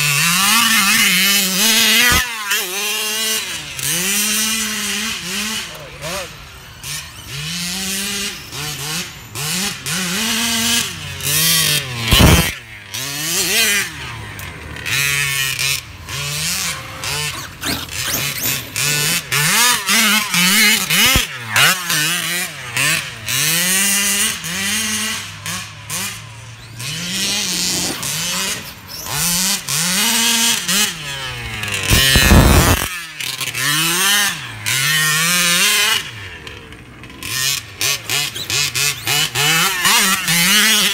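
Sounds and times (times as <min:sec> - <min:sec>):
two-stroke rc buggy engine revving: 0:00.0 - 0:40.9
loud bursts of noise: 0:12.0 - 0:12.7, 0:31.8 - 0:32.9.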